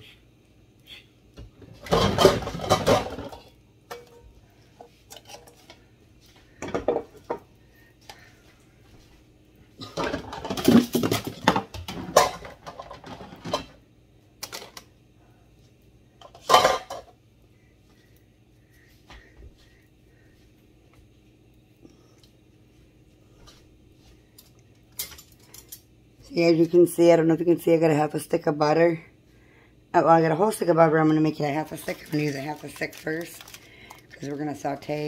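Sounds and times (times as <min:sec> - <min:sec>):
pots and pans clattering: 0:01.6 - 0:04.3, 0:06.6 - 0:07.5, 0:09.8 - 0:13.8, 0:16.2 - 0:17.2.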